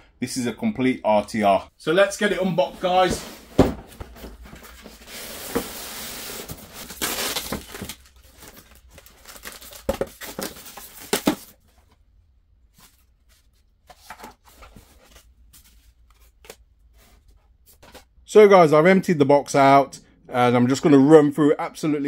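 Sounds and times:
packaging rustling and tearing: 4.5s - 11.6s.

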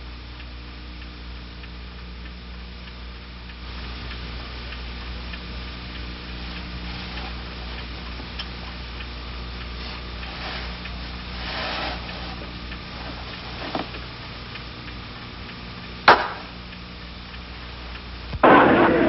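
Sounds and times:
sharp smack: 16.1s - 16.5s, 18.4s - 19.0s.

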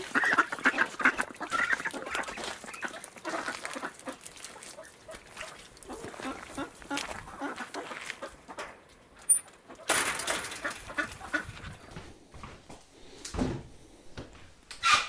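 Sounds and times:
ducks quacking: 0.0s - 11.9s.

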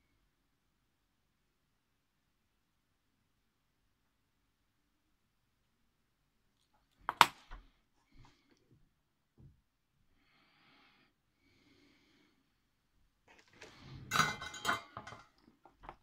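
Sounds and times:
faint breathing: 10.1s - 12.7s
rustling clatter of wires and tools: 13.3s - 16.0s.

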